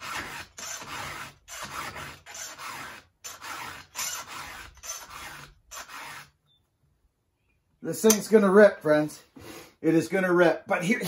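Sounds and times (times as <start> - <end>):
file rasping on chainsaw chain: 0.0 - 6.3.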